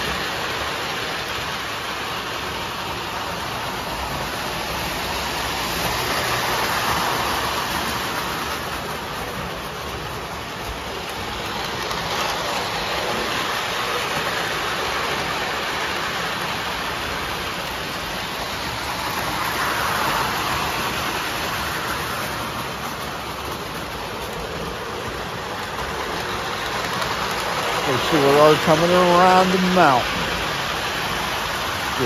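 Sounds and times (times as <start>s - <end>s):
model trains rumbling on track: 0.0s - 32.0s.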